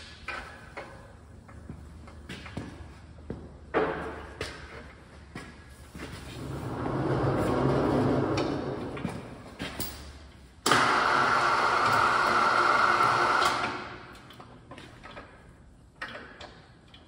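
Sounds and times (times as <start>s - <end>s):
electric chain hoist running: 10.7s - 14.0s.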